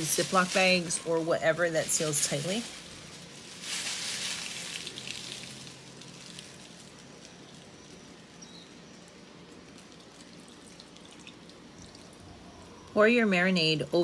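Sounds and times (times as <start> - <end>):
short rustle: 1.8 - 7.4
marinade pouring: 2.8 - 12.3.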